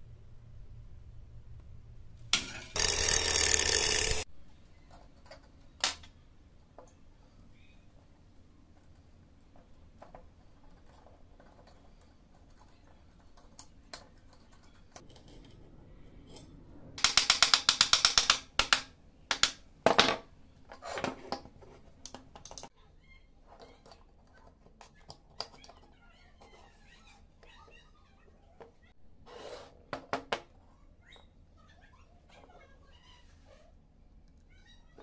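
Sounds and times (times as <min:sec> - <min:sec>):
small hammer tapping metal: 0:17.0 - 0:19.6.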